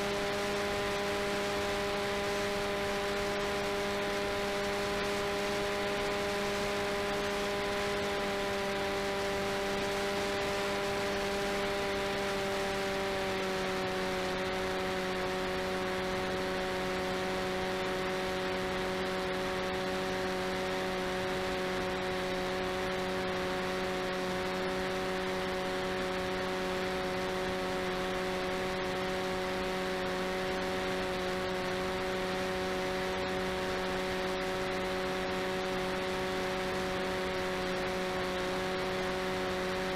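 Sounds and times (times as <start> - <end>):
electric motor whine: 0.0 - 39.9.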